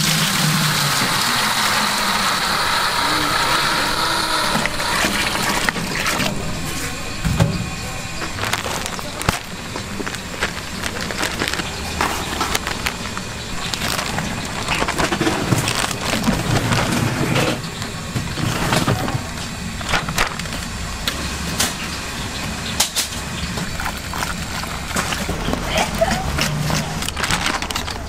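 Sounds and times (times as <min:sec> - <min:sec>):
powder pouring into pot: 0:00.0 - 0:06.3, 0:08.3 - 0:17.0
plastic bag crinkling: 0:01.8 - 0:07.3, 0:08.0 - 0:20.8, 0:23.6 - 0:28.0
steady low rumble: 0:02.4 - 0:28.0
whisk scraping in metal pot: 0:23.6 - 0:27.6.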